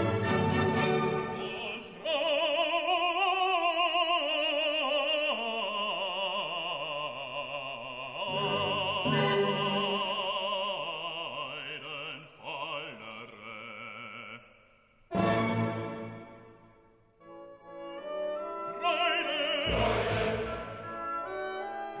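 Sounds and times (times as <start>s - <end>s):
classical accompaniment: 0.0s - 1.9s, 8.3s - 10.5s, 15.1s - 22.0s
operatic singing: 0.0s - 16.4s, 17.9s - 22.0s.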